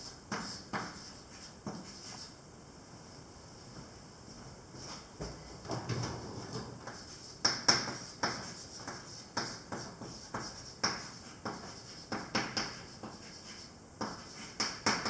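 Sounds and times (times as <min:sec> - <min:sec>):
chalk tapping and scratching on blackboard: 0:00.0 - 0:02.4, 0:06.8 - 0:15.0.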